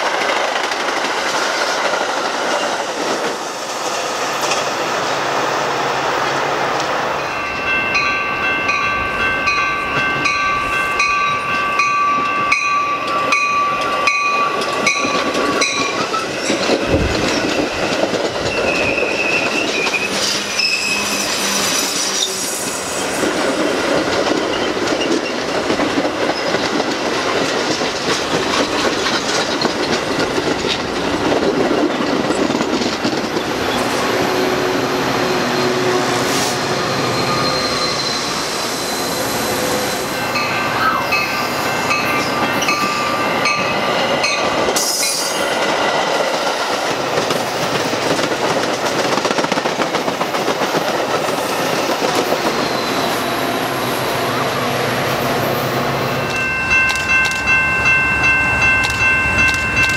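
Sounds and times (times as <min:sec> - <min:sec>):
diesel locomotive passing: 0:00.0 - 0:59.9
train wheels rumbling and clacking: 0:00.0 - 0:59.9
crossing bell clanging: 0:07.0 - 0:22.0, 0:39.1 - 0:45.8, 0:55.4 - 0:59.9
wheel squeal: 0:18.4 - 0:23.3, 0:36.8 - 0:39.6.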